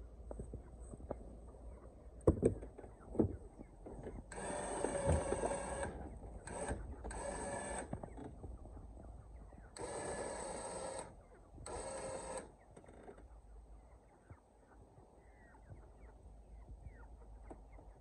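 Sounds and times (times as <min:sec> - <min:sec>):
electric winch winding rope: 0:04.3 - 0:07.9, 0:09.8 - 0:12.5.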